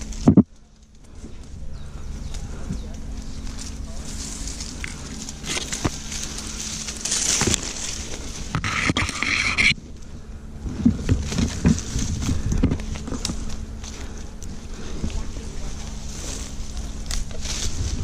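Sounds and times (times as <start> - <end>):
hands scraping on bark: 0.0 - 18.0
rustling leaves and twigs: 0.0 - 18.0
low thumps: 9.9 - 16.0.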